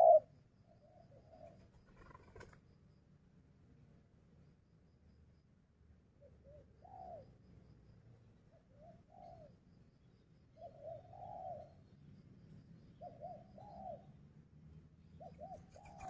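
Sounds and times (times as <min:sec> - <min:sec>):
dove cooing: 0:00.0 - 0:00.3, 0:01.0 - 0:02.6, 0:08.7 - 0:09.6, 0:10.6 - 0:11.8, 0:13.0 - 0:14.1, 0:15.2 - 0:16.0.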